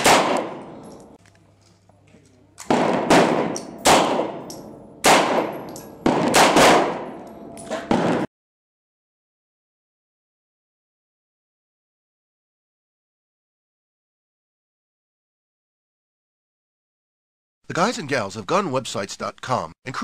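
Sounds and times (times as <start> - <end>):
pistol shots with echo: 0.0 - 1.1, 2.6 - 8.3.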